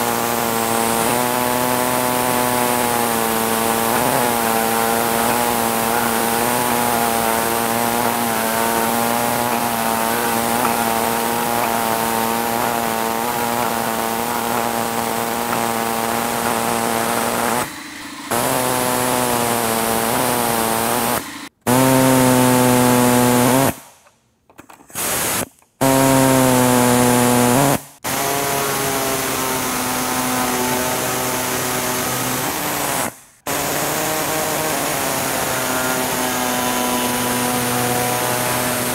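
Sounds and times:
power cutter whining: 0.0s - 23.8s, 25.1s - 38.9s.

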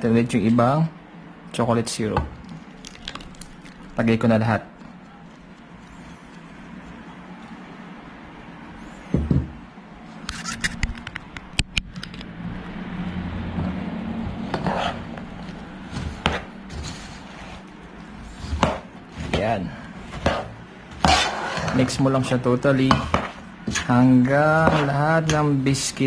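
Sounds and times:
metal spoon scraping thick mix: 14.4s - 26.0s.

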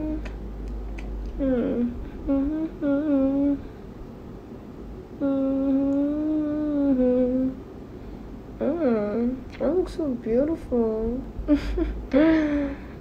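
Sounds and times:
woman humming: 0.0s - 0.4s, 1.3s - 3.7s, 5.2s - 7.6s, 8.6s - 9.4s, 11.1s - 13.0s.

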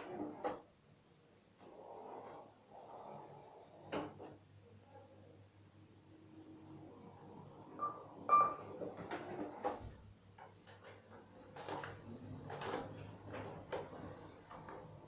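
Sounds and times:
short beeps: 7.8s - 8.6s.

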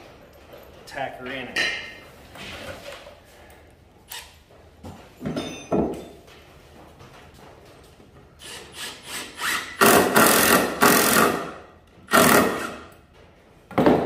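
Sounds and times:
screw grinding into wood: 8.4s - 12.9s.

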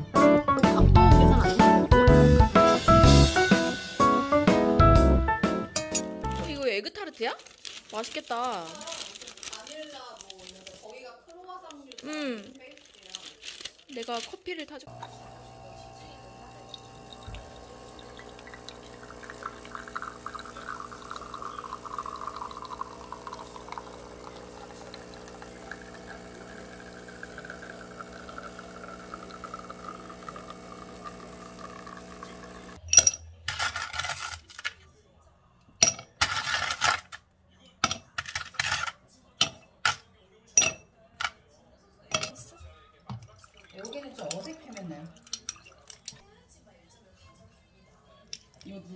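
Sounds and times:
ice cubes clinking in glass: 12.8s - 34.5s
coffee pouring into pitcher: 14.9s - 32.8s, 43.0s - 46.2s
espresso machine pump humming: 14.9s - 32.8s.

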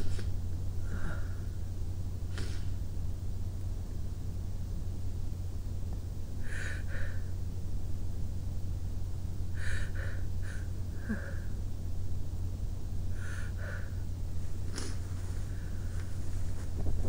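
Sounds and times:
steady low hum: 0.0s - 17.0s
person sniffling: 2.3s - 2.8s, 9.6s - 11.6s.

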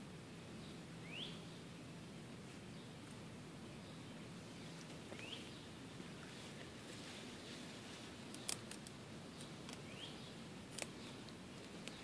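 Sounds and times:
low background noise: 0.0s - 12.0s
bird chirp: 0.5s - 1.8s, 2.7s - 6.5s, 8.3s - 12.0s
rabbit chewing stems: 8.0s - 12.0s.

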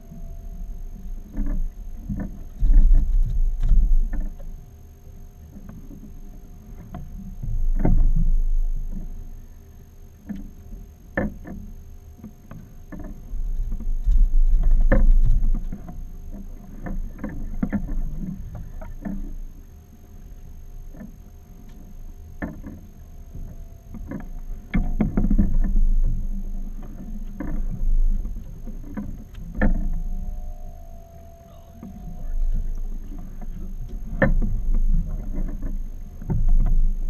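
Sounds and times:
low rumbling surges: 22.8s - 37.0s.

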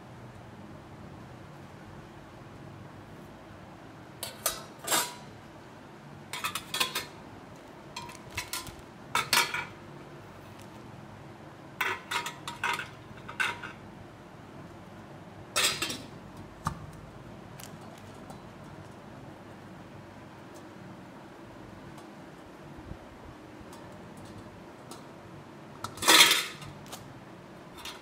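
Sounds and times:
metal cookware clinking: 4.2s - 5.3s, 6.4s - 7.2s, 8.0s - 9.8s, 11.8s - 13.8s, 15.6s - 16.1s, 25.9s - 26.7s.

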